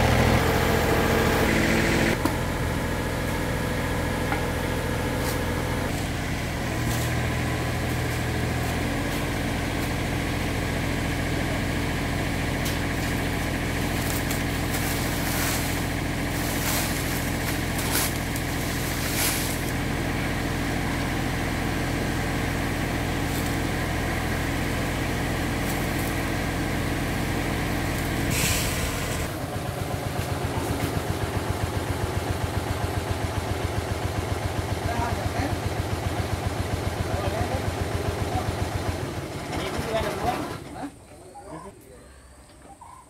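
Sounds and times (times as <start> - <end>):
diesel engine running: 0.0 - 41.2
rake scraping ground: 4.8 - 21.0, 21.6 - 29.3.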